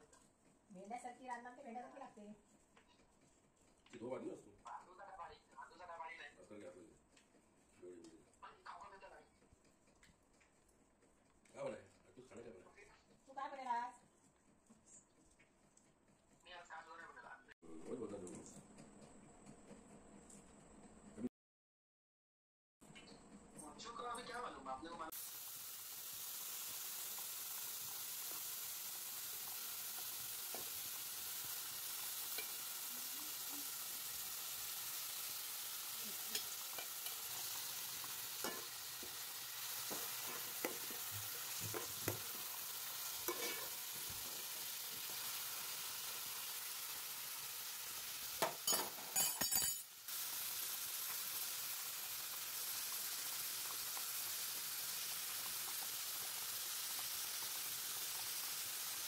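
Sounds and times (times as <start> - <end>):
onions sizzling in oil: 25.1 - 59.0
spoon scraping metal pot: 32.0 - 32.7, 36.1 - 44.2.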